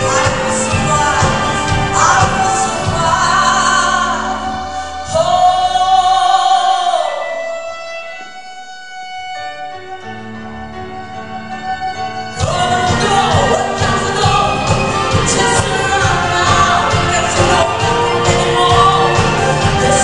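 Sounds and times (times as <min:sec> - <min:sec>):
woman singing: 0:00.0 - 0:07.6, 0:12.3 - 0:20.0
orchestra bowed strings: 0:00.0 - 0:20.0.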